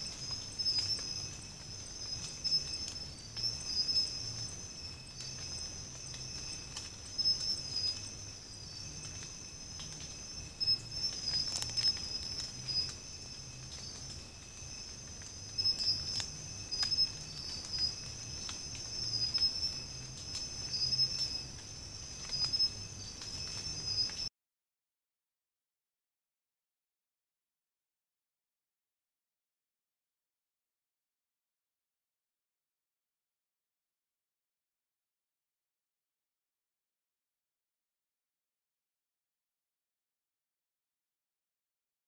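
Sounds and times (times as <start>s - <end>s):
crickets trilling: 0.0s - 24.3s
sharp insect ticks: 0.0s - 24.3s.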